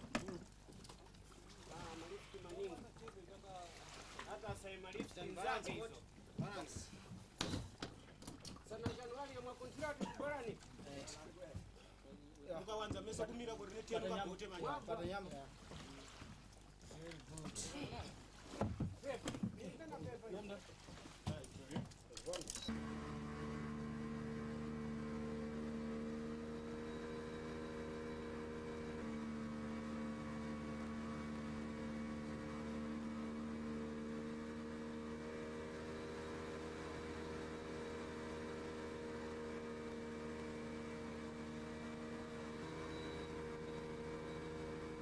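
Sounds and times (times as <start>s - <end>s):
boat motor running: 22.7s - 45.0s.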